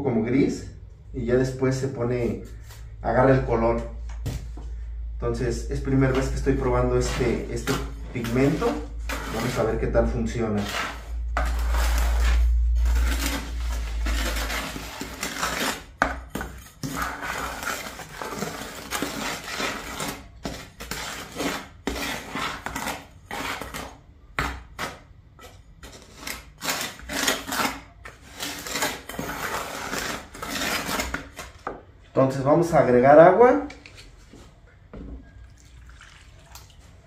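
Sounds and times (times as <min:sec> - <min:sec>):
utensil scraping in container: 0:05.8 - 0:31.5
low rumble: 0:11.0 - 0:14.6.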